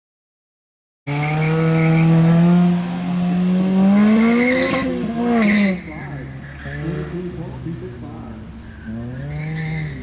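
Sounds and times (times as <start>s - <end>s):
tire squeals: 1.1s - 2.5s, 3.9s - 7.2s, 8.6s - 10.0s
car engine revving hard: 1.1s - 7.7s.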